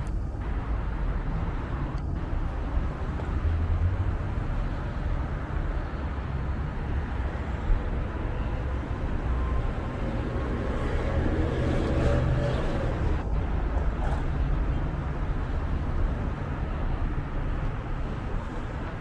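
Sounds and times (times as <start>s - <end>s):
street traffic rumble: 0.0s - 19.0s
vehicle passing by: 9.9s - 13.2s.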